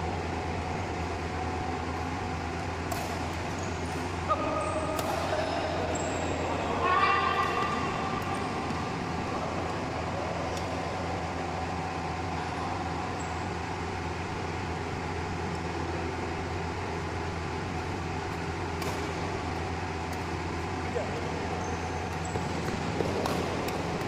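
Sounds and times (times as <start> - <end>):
constant low hum: 0.0 - 24.0.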